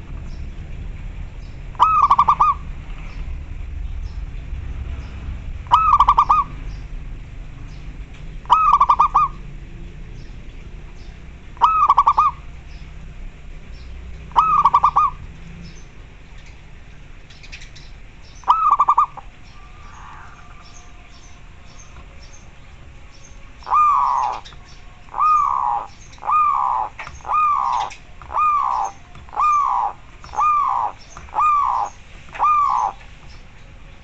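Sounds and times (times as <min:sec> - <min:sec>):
small birds chirping: 0:00.0 - 0:34.0
dove cooing: 0:01.7 - 0:02.7, 0:05.7 - 0:06.7, 0:08.4 - 0:09.4, 0:11.6 - 0:12.5, 0:14.3 - 0:15.2, 0:18.4 - 0:22.9, 0:23.5 - 0:33.5.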